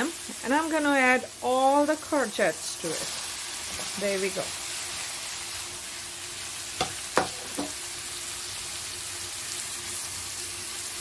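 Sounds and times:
vegetables sizzling in a wok: 0:00.0 - 0:11.0
sharp knocks against pan: 0:06.8 - 0:07.8.

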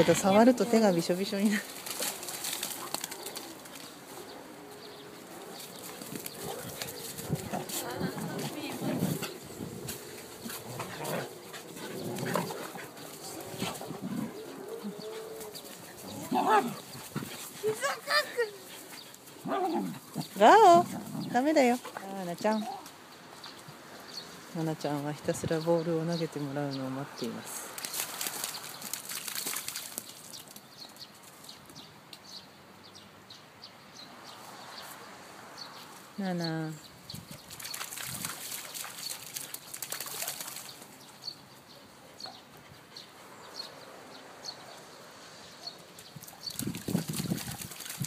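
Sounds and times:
paws scuffling on mud: 0:00.0 - 0:23.8, 0:27.6 - 0:31.8, 0:37.1 - 0:41.5, 0:45.9 - 0:48.0
dogs growling in play: 0:02.2 - 0:22.0.

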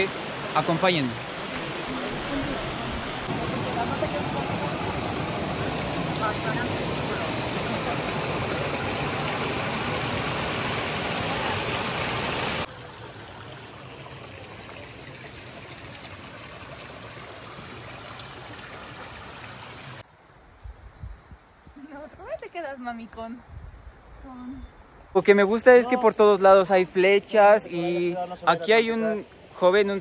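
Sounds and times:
waterfall roar: 0:00.0 - 0:14.7.

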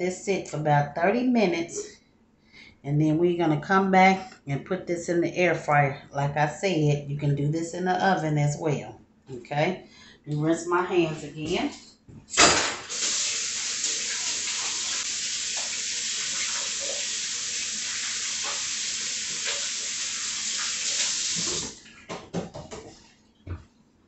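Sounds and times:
faucet running into sink: 0:12.9 - 0:21.8
hands rinsed under water: 0:12.9 - 0:21.8.

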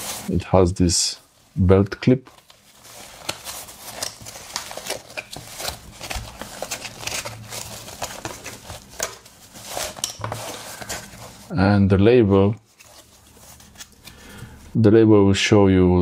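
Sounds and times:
pouch rustling and crinkling: 0:00.0 - 0:00.3, 0:02.2 - 0:11.5.

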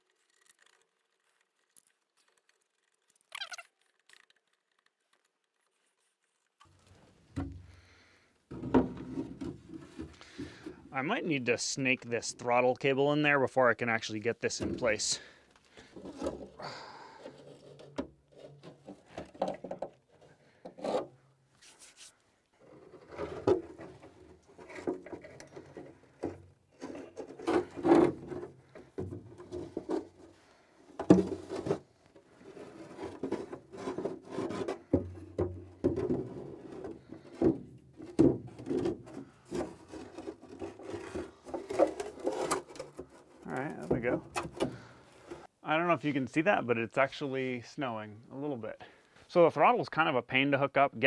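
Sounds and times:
fiberglass rubbing and scraping: 0:17.2 - 0:45.5.

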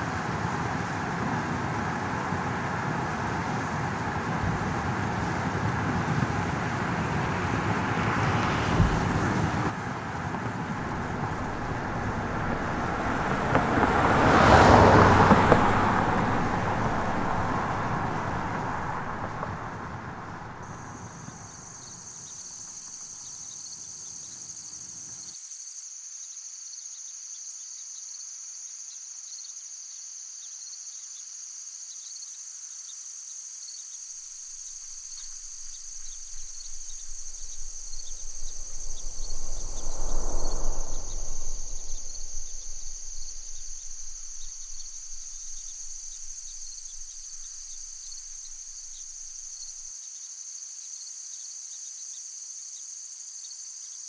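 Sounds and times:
insects chorus: 0:00.0 - 0:54.0
low rumble: 0:03.1 - 0:20.7, 0:34.6 - 0:49.9.

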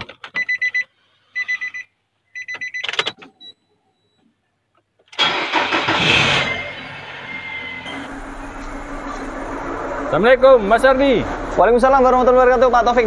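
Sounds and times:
car engine starting: 0:05.2 - 0:13.0.

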